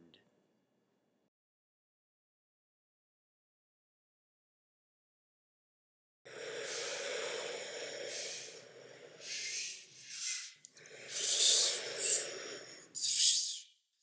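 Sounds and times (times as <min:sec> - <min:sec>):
person imitating ocean waves: 0:06.4 - 0:13.7.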